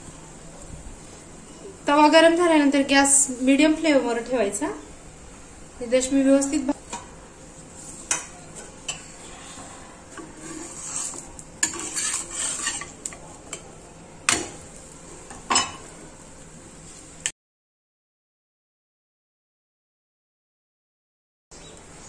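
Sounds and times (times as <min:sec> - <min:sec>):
light sizzling: 0:00.0 - 0:17.3
spatula tapping on griddle: 0:14.3 - 0:14.6.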